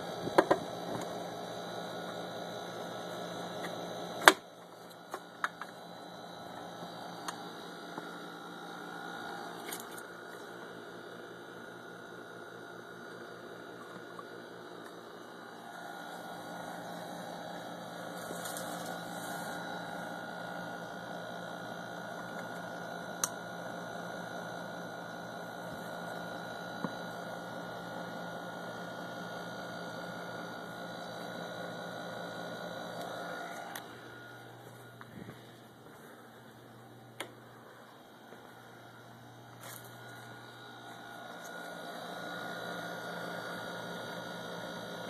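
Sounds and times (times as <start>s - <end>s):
electrical hum: 0.0s - 45.0s
whirring noise: 30.4s - 45.0s.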